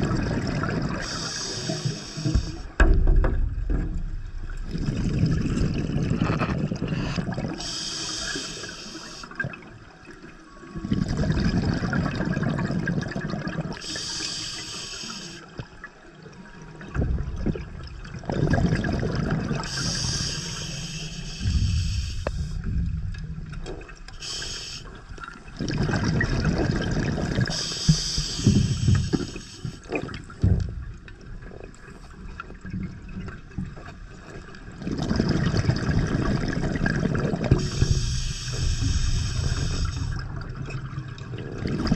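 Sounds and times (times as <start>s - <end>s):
rumbling exhaled bubbles: 0.0s - 1.4s, 2.2s - 7.6s, 10.6s - 13.8s, 16.5s - 24.2s, 25.0s - 41.9s
regulator hissing inhalation: 1.0s - 2.7s, 6.9s - 9.4s, 13.8s - 15.5s, 19.6s - 22.7s, 24.2s - 25.1s, 27.5s - 29.8s, 37.6s - 40.2s.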